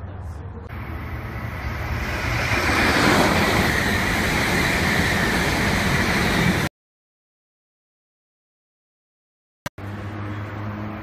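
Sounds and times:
high-speed train passing: 0.1s - 6.7s, 9.8s - 11.0s.

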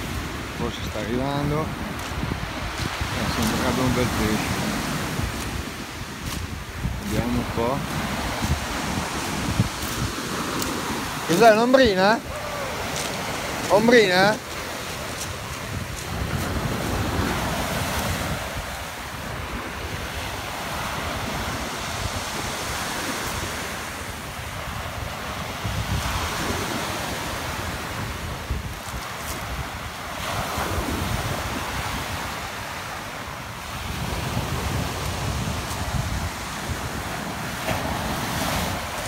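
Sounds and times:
surf on a pebble beach: 0.0s - 39.0s
wind buffeting microphone: 0.0s - 39.0s.

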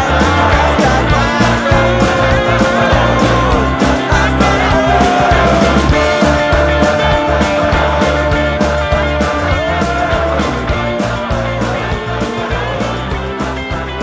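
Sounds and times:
bass: 0.0s - 14.0s
sliding lead melody: 0.0s - 14.0s
steady drum beat: 0.0s - 14.0s.

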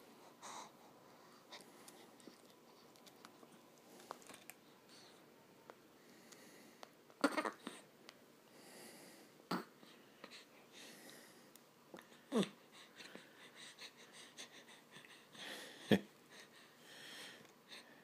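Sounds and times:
baby breathing: 0.2s - 2.4s.

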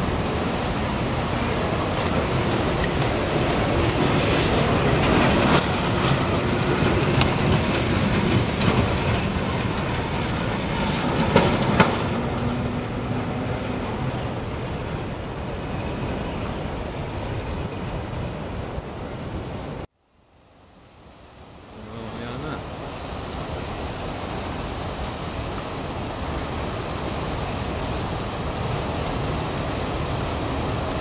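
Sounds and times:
tram wheels rumbling: 0.0s - 19.9s, 21.8s - 31.0s.

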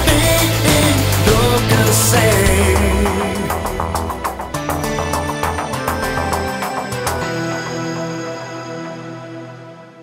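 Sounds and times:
rock band playing: 0.0s - 8.0s
wavering lead guitar line: 0.0s - 9.8s
sharp drum hits: 0.1s - 5.2s.

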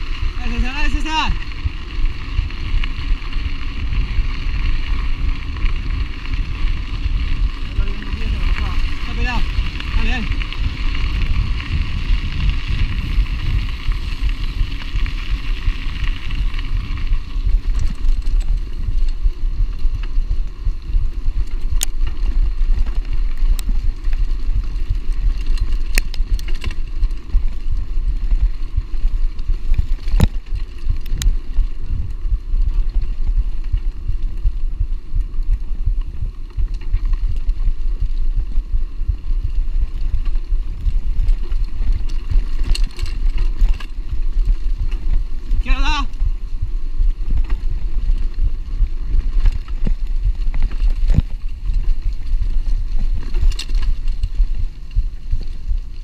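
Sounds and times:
bike tyres rumbling on dirt: 0.0s - 56.0s
wind on microphone: 0.0s - 56.0s
bike clicks and knocks: 1.7s - 27.6s, 38.9s - 45.6s, 47.2s - 56.0s.

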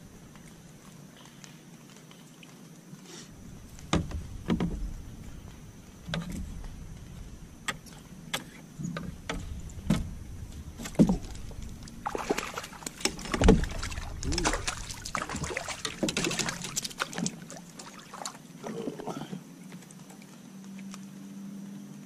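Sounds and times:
fishing gear knocking and clicking: 12.8s - 17.4s.

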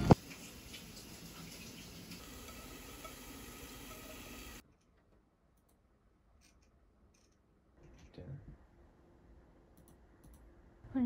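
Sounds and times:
computer mouse clicks: 9.8s - 10.5s.

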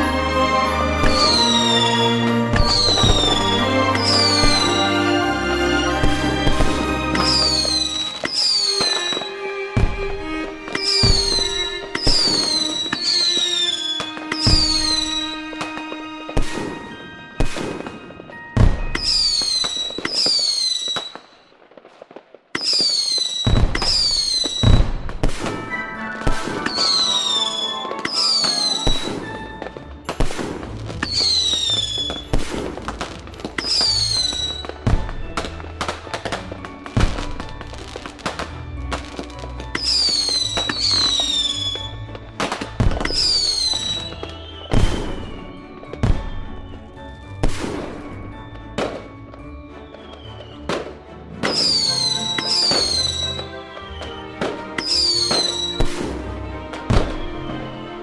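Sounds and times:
firework bangs: 0.0s - 58.0s
firework whistles falling in pitch: 1.0s - 5.2s, 6.0s - 9.9s, 10.7s - 21.6s, 22.6s - 32.7s, 33.5s - 35.6s, 39.7s - 48.2s, 49.8s - 50.9s, 51.5s - 56.2s.

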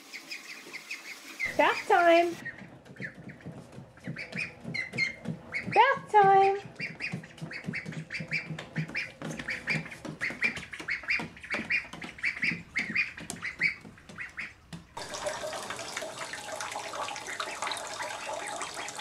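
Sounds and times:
water running into a bathtub: 0.0s - 2.5s, 14.7s - 19.0s
ducklings peeping: 0.0s - 15.0s.

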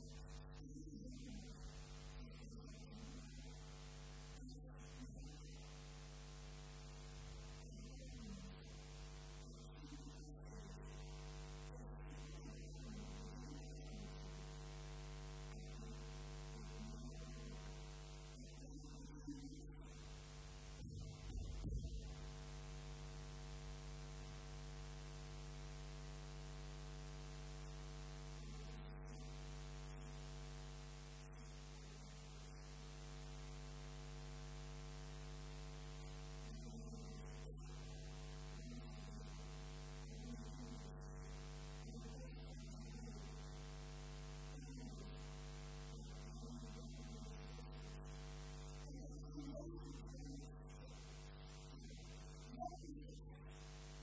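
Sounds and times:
electrical mains hum: 0.0s - 54.0s
faint voice: 15.5s - 22.4s, 44.5s - 54.0s.

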